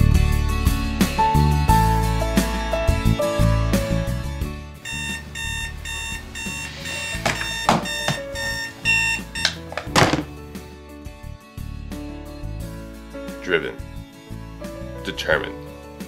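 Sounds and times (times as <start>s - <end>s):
background music: 0.0s - 16.0s
digital alarm clock beeping: 4.8s - 9.8s.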